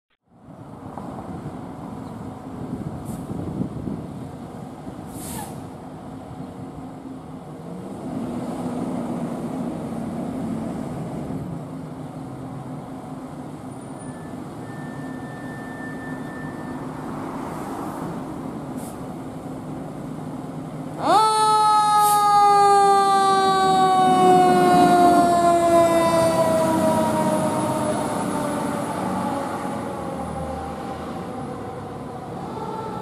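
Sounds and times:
air brake hiss: 3.0s - 3.4s, 5.0s - 5.8s, 18.7s - 19.1s, 22.0s - 22.2s
fire engine diesel engine pulling away: 22.0s - 33.0s.

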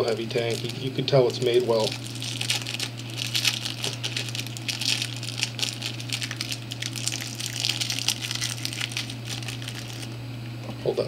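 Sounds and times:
plastic packaging crinkling: 0.0s - 10.2s
steady low hum: 0.0s - 11.0s.

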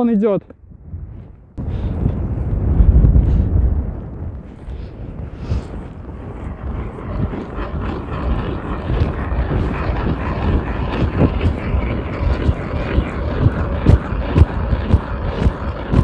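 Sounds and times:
ice auger grinding through ice: 5.2s - 16.0s.

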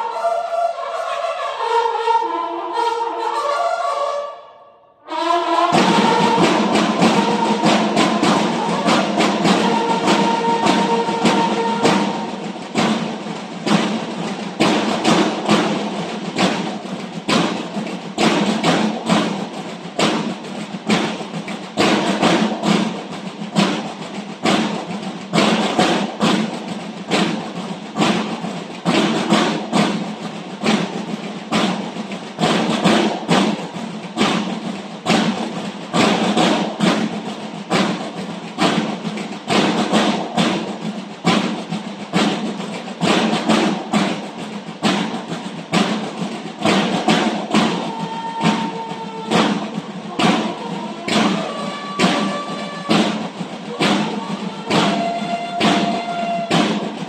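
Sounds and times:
bugles sounding held notes: 5.1s - 12.4s, 47.5s - 53.1s, 53.7s - 56.8s
snare and bass drums marching beat: 5.1s - 57.0s.

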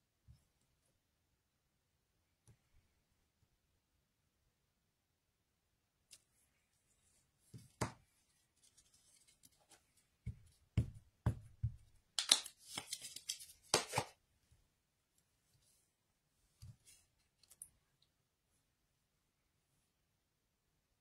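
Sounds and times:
sharp knock on craft mat: 10.3s - 11.8s.

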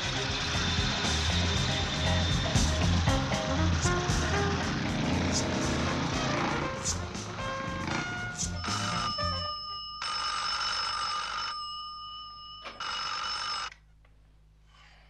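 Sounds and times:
telephone bell ringing: 8.5s - 13.8s.

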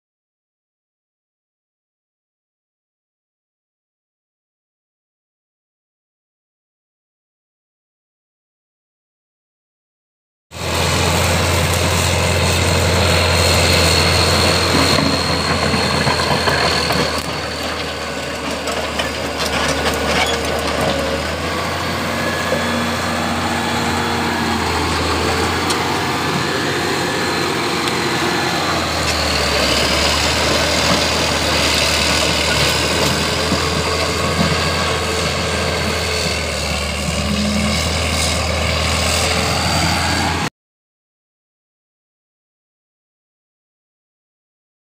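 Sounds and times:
bulldozer diesel engine droning: 10.5s - 40.5s.

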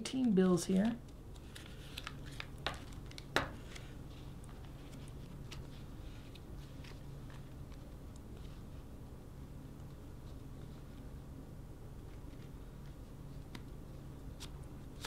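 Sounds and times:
banknotes rustling in wallet: 0.7s - 8.8s.

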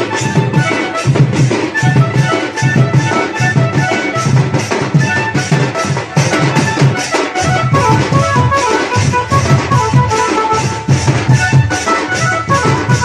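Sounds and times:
band music over loudspeakers: 0.0s - 13.0s.

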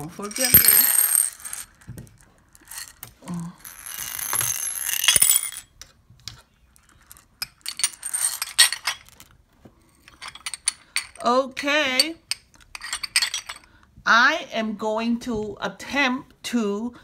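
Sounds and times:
beads rattling in china bowls: 0.0s - 1.8s, 2.5s - 5.6s, 6.8s - 9.2s.

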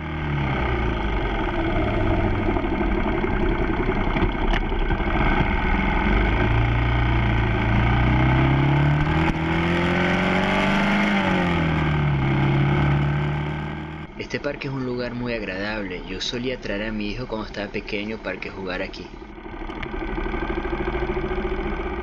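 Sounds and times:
motorcycle engine: 0.0s - 22.0s.

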